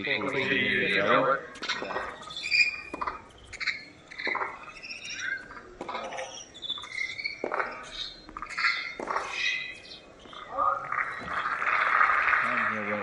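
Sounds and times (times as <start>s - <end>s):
sneakers squeaking on court: 1.5s - 11.4s
racket striking tennis ball: 8.8s - 9.4s.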